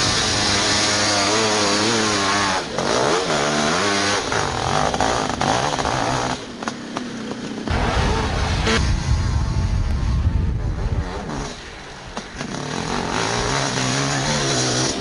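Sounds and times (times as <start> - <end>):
quad engine revving: 0.0 - 11.6, 12.4 - 15.0
deeper engine rumble: 7.7 - 11.8.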